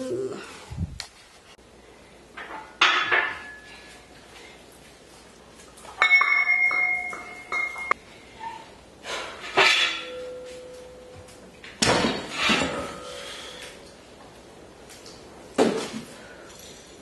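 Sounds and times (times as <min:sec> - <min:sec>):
metallic clank ringing: 0:06.0 - 0:08.0, 0:09.6 - 0:11.3
small metal clink: 0:06.0 - 0:08.0.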